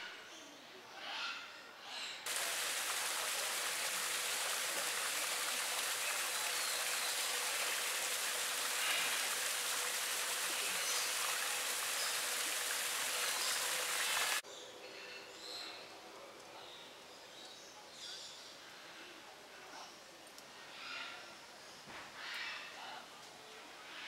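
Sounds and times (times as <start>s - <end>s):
waterfall splashing over rocks: 2.3s - 14.4s.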